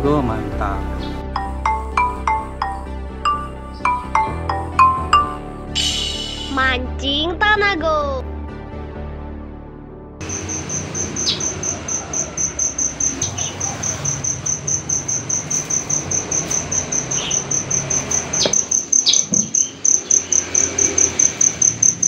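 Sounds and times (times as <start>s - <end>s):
crickets chirping: 1.4s - 5.2s, 10.2s - 22.0s.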